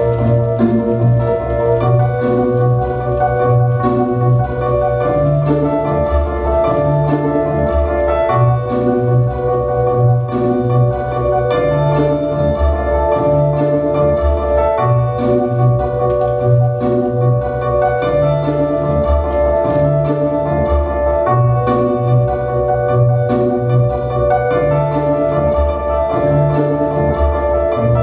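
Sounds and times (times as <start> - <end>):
pulsing bass: 0.0 - 28.0
percussive strikes: 15.9 - 17.3.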